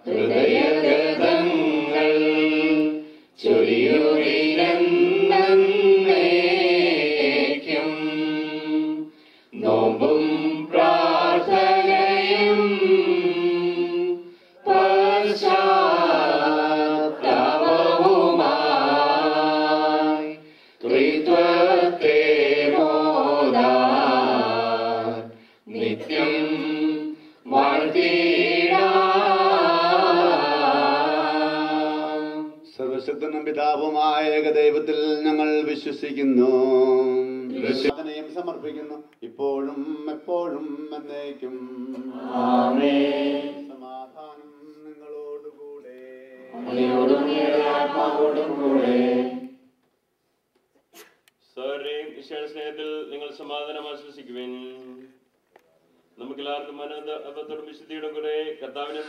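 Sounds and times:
voices singing a slow hymn: 0:00.0 - 0:33.0, 0:34.4 - 0:38.0, 0:39.2 - 0:49.8.

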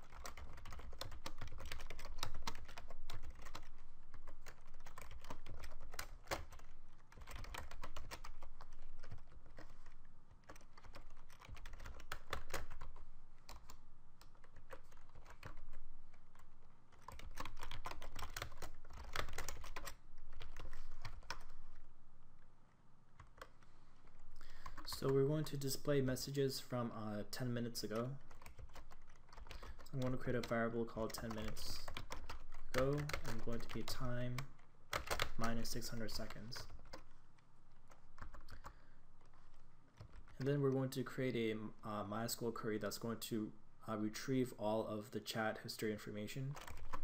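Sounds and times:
typing on computer keyboard: 0:00.0 - 0:21.6, 0:27.8 - 0:37.1, 0:37.9 - 0:40.7, 0:46.5 - 0:47.0.

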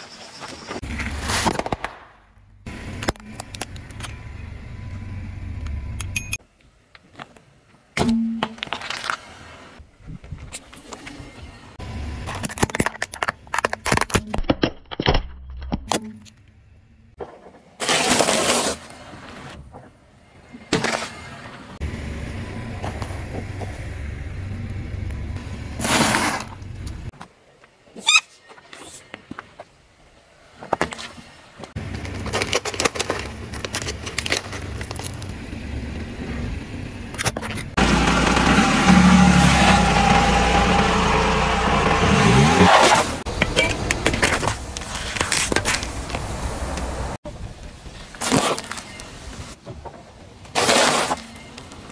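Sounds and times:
low car rumble: 0:02.4 - 0:06.4, 0:21.8 - 0:27.1, 0:31.8 - 0:45.0.

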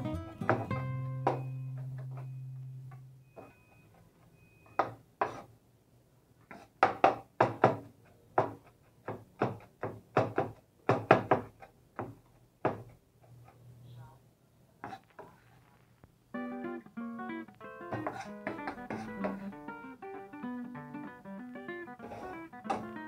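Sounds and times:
held guitar note: 0:00.0 - 0:03.2, 0:16.3 - 0:23.0
knocks on hard surface: 0:00.5 - 0:01.5, 0:06.8 - 0:12.9, 0:17.9 - 0:19.4, 0:22.7 - 0:23.0.

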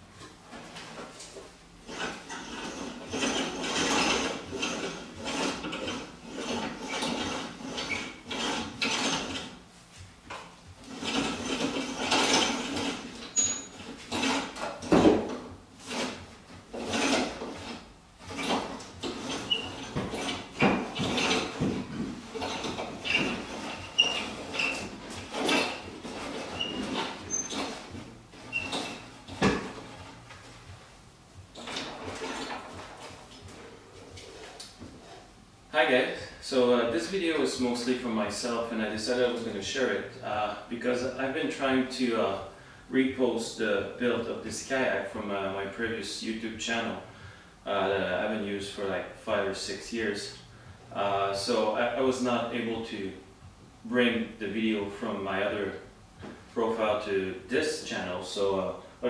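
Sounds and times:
creaks and rubbing: 0:00.0 - 0:42.4
rope running through pulleys: 0:01.9 - 0:09.5.

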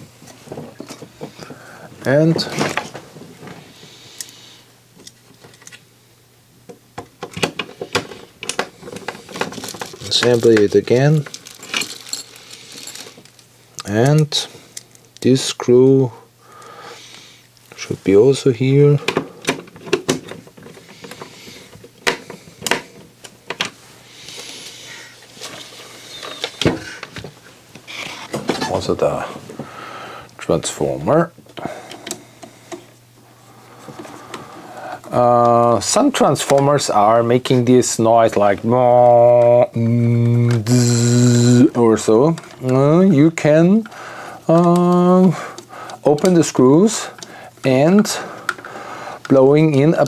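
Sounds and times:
soft handling rustle: 0:07.8 - 0:15.3, 0:20.4 - 0:29.7.

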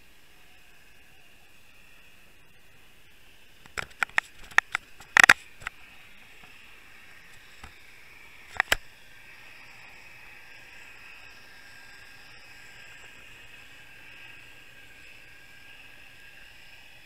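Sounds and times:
steady underwater hiss: 0:00.0 - 0:17.0
sharp underwater clicks: 0:03.6 - 0:05.8, 0:08.5 - 0:08.9.

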